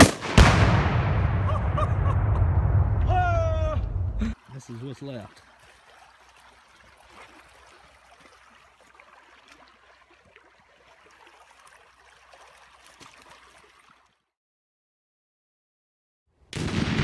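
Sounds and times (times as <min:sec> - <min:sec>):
water rushing through gap: 0:03.0 - 0:14.2.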